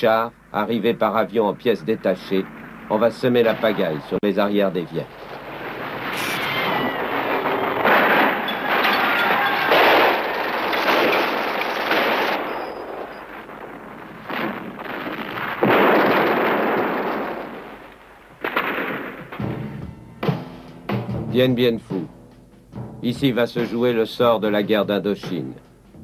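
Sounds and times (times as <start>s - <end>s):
explosion blasts: 1.7s - 20.4s
gunfire bursts: 2.5s - 19.8s.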